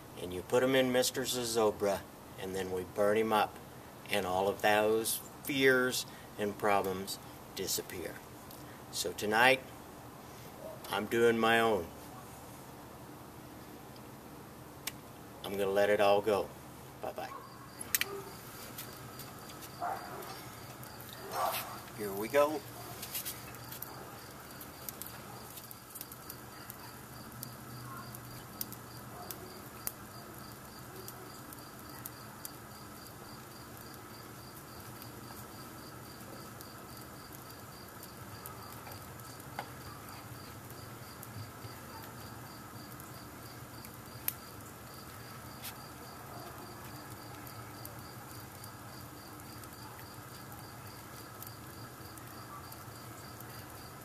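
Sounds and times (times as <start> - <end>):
fire crackling and popping: 0.0 - 54.0
cricket chirping: 17.2 - 21.9, 23.5 - 54.0.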